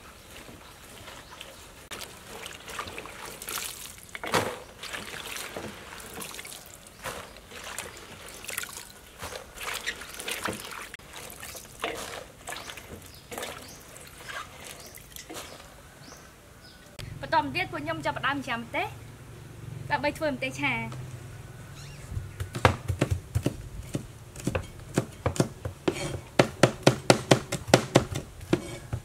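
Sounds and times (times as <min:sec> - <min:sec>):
water sloshing and splashing: 0:00.0 - 0:16.1.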